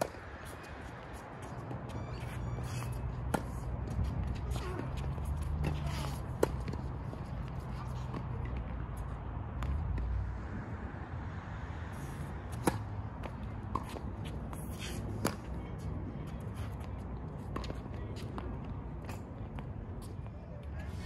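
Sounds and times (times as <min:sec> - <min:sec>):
tennis ball struck by rackets: 0:12.5 - 0:14.0.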